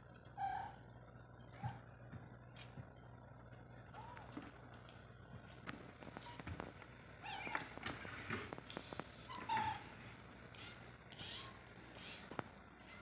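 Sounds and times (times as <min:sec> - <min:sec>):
kitten mewing: 0:10.5 - 0:13.0.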